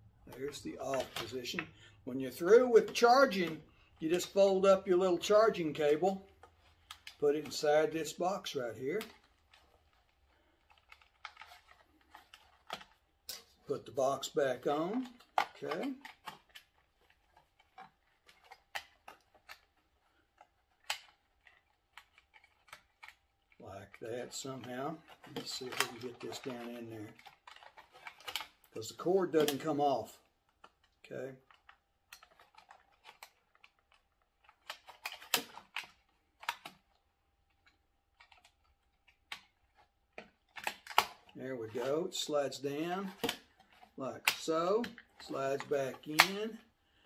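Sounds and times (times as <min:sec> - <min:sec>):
plastic clicks and snaps: 0:14.7 - 0:23.6, 0:24.4 - 0:41.9, 0:42.9 - 0:46.6.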